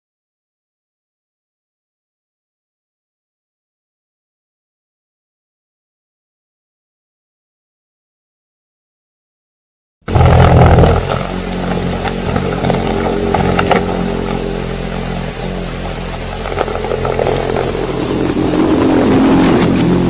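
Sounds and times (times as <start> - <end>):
mechanical drone hum: 10.1 - 20.0
ticks and rattle: 10.2 - 18.6.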